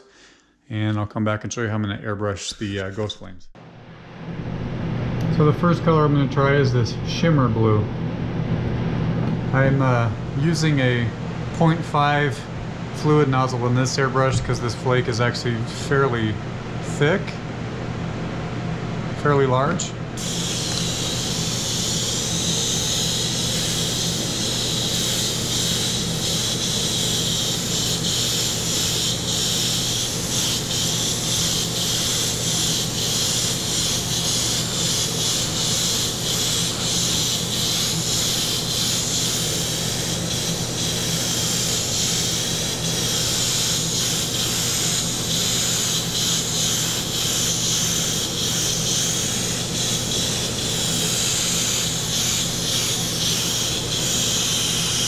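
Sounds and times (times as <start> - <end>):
airbrush hissing: 20.2 - 55.0.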